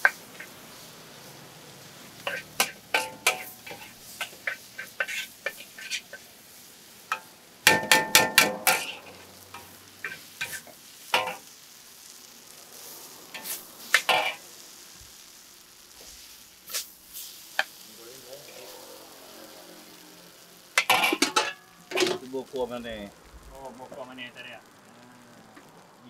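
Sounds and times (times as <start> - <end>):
metal utensils clinking: 2.2 - 6.2, 7.1 - 11.4, 20.8 - 22.3.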